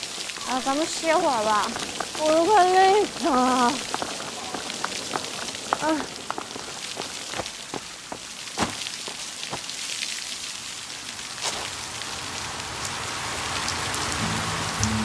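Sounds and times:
steady hiss with clicks and pops: 0:00.0 - 0:15.0
background music: 0:14.2 - 0:15.0.

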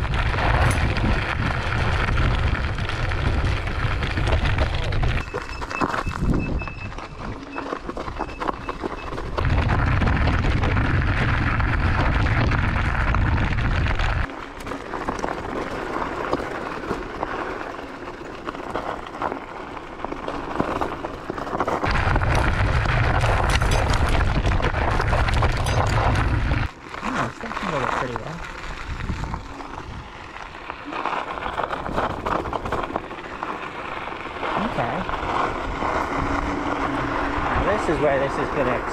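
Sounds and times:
wind buffeting microphone: 0:00.0 - 0:07.4, 0:08.0 - 0:14.3, 0:21.8 - 0:26.7, 0:28.7 - 0:30.7
scooter jolting over rocks: 0:00.0 - 0:38.9
tyres crunching on gravel: 0:00.0 - 0:38.9.

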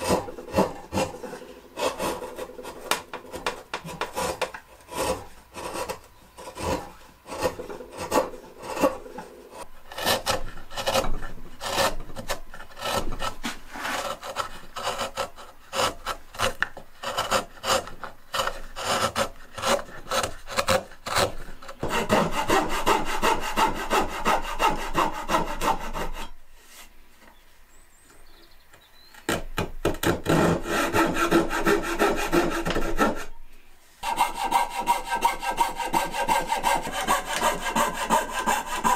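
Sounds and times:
coping saw sawing wood: 0:00.0 - 0:26.9, 0:30.2 - 0:33.4, 0:34.0 - 0:38.9
chisel paring wood: 0:01.8 - 0:09.2, 0:29.2 - 0:33.2, 0:34.1 - 0:38.9.

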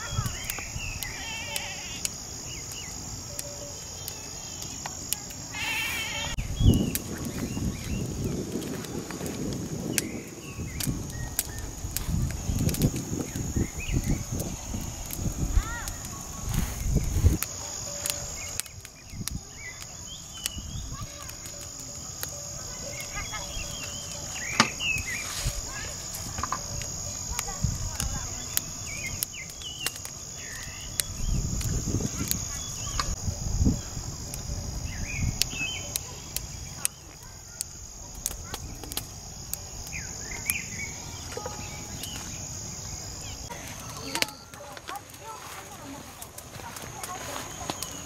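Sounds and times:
high-pitched insect drone: 0:00.0 - 0:06.8
insects chirring: 0:00.0 - 0:48.0
sharp clicks: 0:26.8 - 0:33.2.

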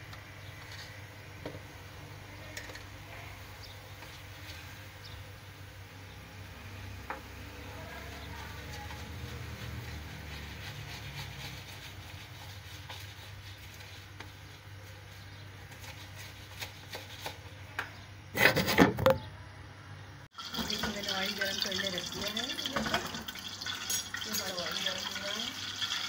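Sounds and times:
spoon stirring batter: 0:07.0 - 0:18.0.

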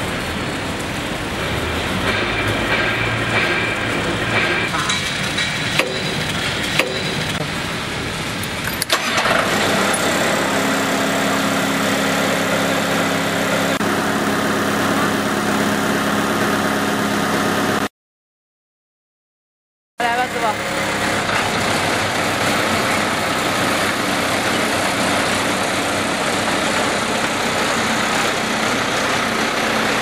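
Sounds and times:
diesel engine starting and idling: 0:00.0 - 0:17.9, 0:20.0 - 0:30.0
machine noise: 0:00.0 - 0:17.9, 0:20.0 - 0:30.0
clicks and knocks: 0:04.3 - 0:07.4.

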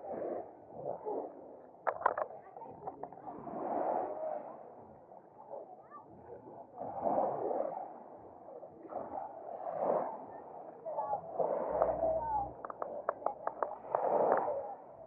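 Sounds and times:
small waves washing on shore: 0:06.8 - 0:15.0.

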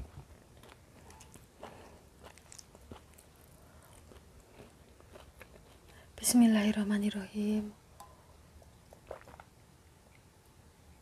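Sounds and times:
person chewing: 0:00.0 - 0:06.0, 0:08.6 - 0:09.5.

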